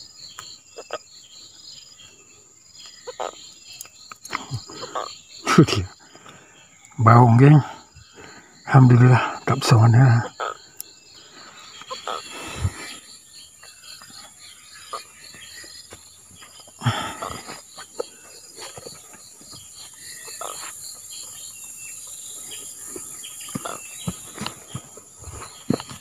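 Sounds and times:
continuous high insect hum: 0.0 - 26.0
insects chirping: 0.0 - 26.0
knocks and rustles of movement: 22.8 - 26.0.

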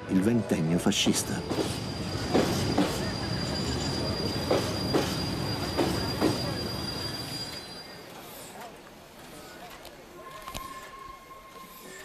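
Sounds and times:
steam train rumble: 0.8 - 9.3
high wheel squeal: 1.2 - 8.5.

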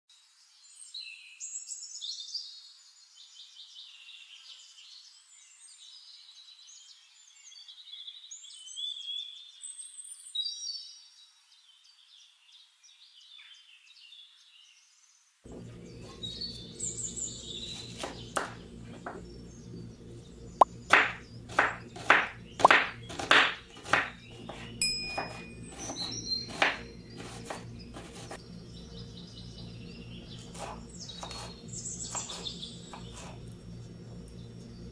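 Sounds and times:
birds chirping and trilling: 0.6 - 34.9
knife chopping on wooden board: 17.8 - 19.2, 20.9 - 28.4, 30.3 - 33.4.

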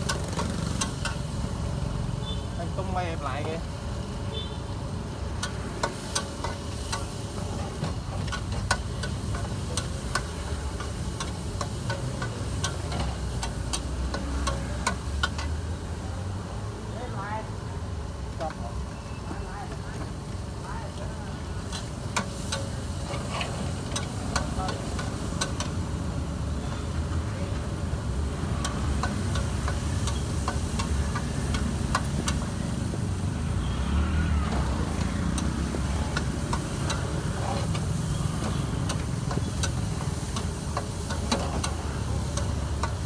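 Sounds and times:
metal utensils scraping a wok: 21.6 - 25.6.

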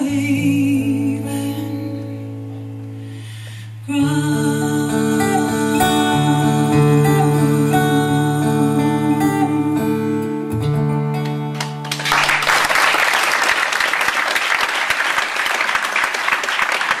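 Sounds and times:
country ballad chords: 0.0 - 12.1
audience applause: 11.6 - 17.0.

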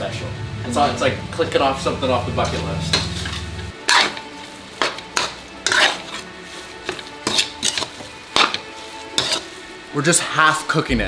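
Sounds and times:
spatula scraping a pan: 2.4 - 10.4.

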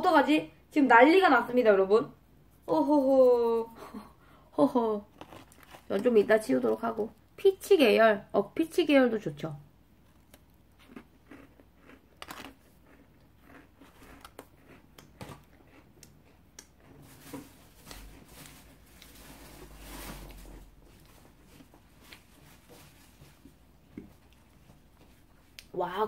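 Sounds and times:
cookie crunching: 5.0 - 7.4, 10.0 - 17.0
rustling: 16.9 - 25.4.

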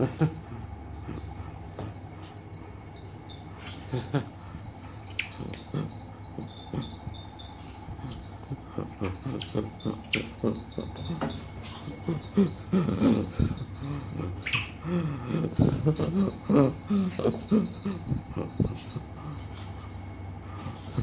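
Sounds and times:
otter squeaking: 2.8 - 21.0.

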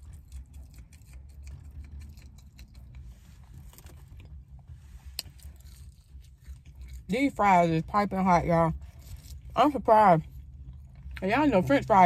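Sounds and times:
person chewing food: 0.0 - 7.1, 8.8 - 9.6, 10.2 - 11.2
low steady rumble: 0.0 - 12.0.

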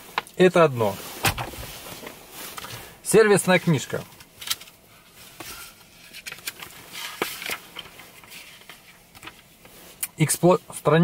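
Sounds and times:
paper pages rustling: 5.3 - 9.8.

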